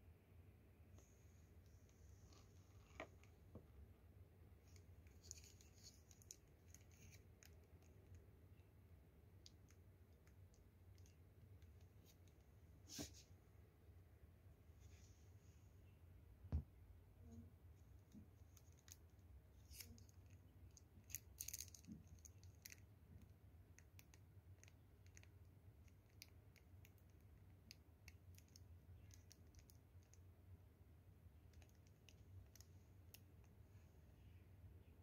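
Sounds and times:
small clicks and handling noises: 4.6s - 8.3s, 9.4s - 12.5s, 18.0s - 30.2s, 31.5s - 33.6s.

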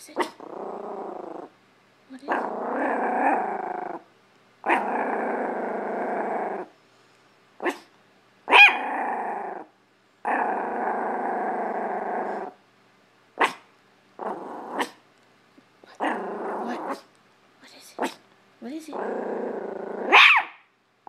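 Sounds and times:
small dog growling: 0.0s - 1.6s, 2.2s - 6.8s, 8.5s - 12.6s, 14.2s - 15.0s, 15.8s - 17.1s, 18.9s - 20.5s
small dog barking: 4.6s - 4.9s, 7.6s - 7.9s, 8.5s - 9.0s, 13.4s - 13.7s, 14.7s - 15.0s, 18.0s - 18.2s, 20.0s - 20.7s.

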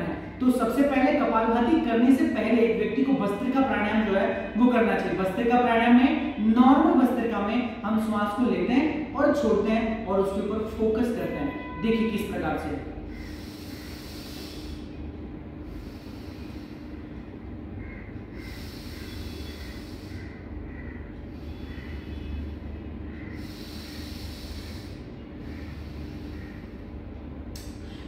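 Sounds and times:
deep breaths through the nose: 13.1s - 15.0s, 15.6s - 17.3s, 18.3s - 20.5s, 21.2s - 27.1s.

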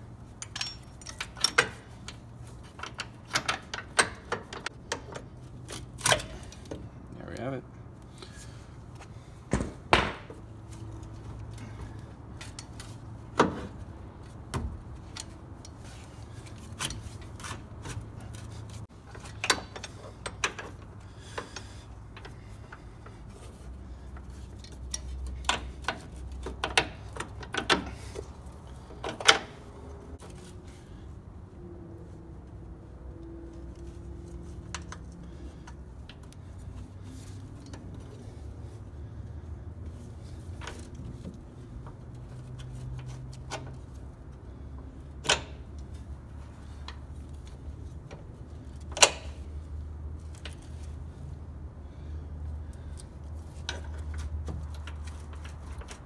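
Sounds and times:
metallic clinks and knocks: 0.3s - 5.3s.

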